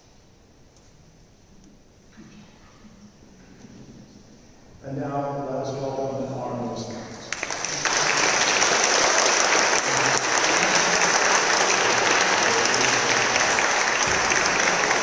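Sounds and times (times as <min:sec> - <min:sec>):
crowd applauding: 0:07.2 - 0:15.0.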